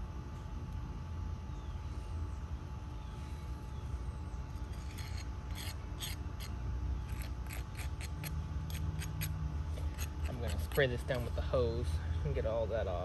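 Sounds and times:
trowel scraping soil: 7.1s - 11.4s.

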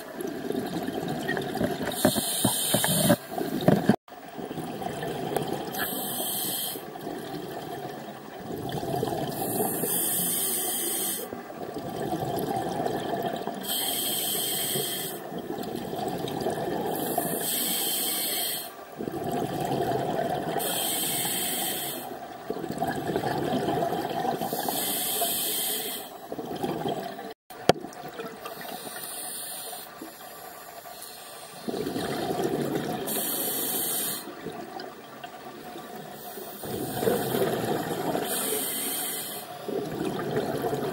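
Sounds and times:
regulator hiss on inhale: 2.0s - 3.2s, 5.7s - 6.9s, 9.4s - 11.3s, 13.6s - 15.2s, 17.0s - 18.8s, 20.6s - 22.2s, 24.5s - 26.2s, 28.5s - 31.7s, 33.0s - 34.4s, 38.2s - 39.6s
exhaust bubbles rushing: 31.7s - 33.1s, 36.7s - 38.2s, 39.7s - 40.9s.

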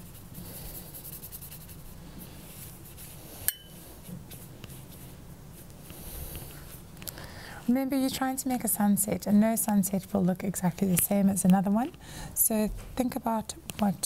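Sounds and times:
paintbrush rubbing on paper: 0.0s - 6.9s.

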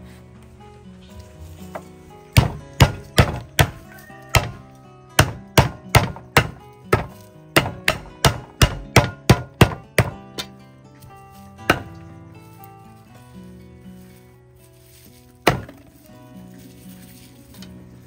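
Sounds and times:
background music: 0.0s - 18.0s
cleaver chopping on wooden block: 2.4s - 4.6s, 5.2s - 10.5s, 11.7s - 12.0s, 15.5s - 15.9s.

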